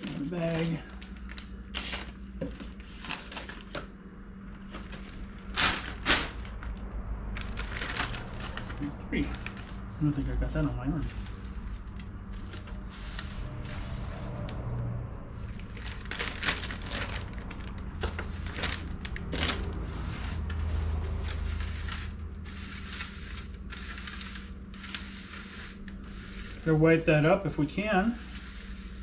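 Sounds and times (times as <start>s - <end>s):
plastic bag crinkling: 0.0s - 3.8s, 4.6s - 14.4s, 15.5s - 27.2s.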